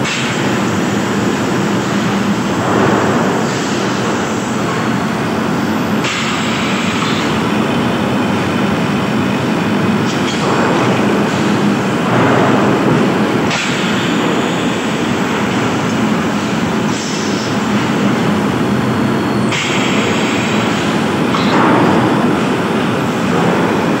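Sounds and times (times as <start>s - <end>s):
machine hiss: 0.0s - 7.4s, 10.0s - 18.3s, 19.4s - 24.0s
loud machinery din: 0.0s - 24.0s.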